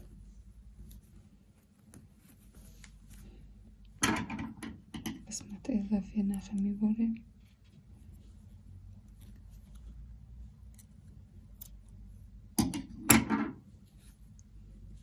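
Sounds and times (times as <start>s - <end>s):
yarn and crochet hook rustling: 0.0s - 3.7s, 5.2s - 12.5s.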